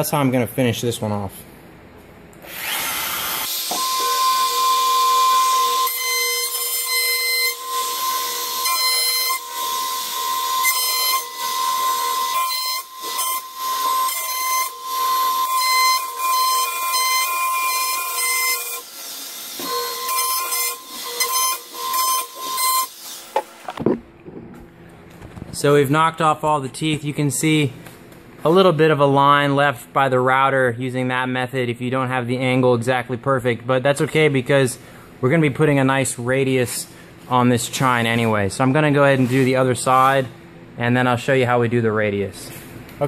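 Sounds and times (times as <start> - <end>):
router bit rasping cuts: 2.4 - 23.8
router high whine: 2.4 - 24.0.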